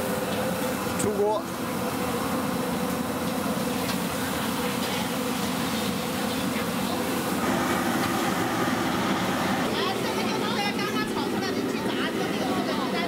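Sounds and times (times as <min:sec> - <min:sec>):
wok stove burner roaring: 0:07.2 - 0:12.8.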